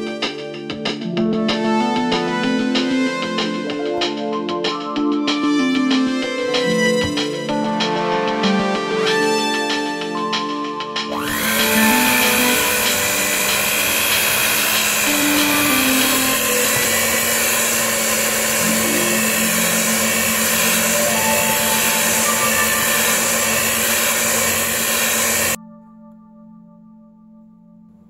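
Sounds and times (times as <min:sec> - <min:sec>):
electric hand mixer running: 0:11.1 - 0:25.6.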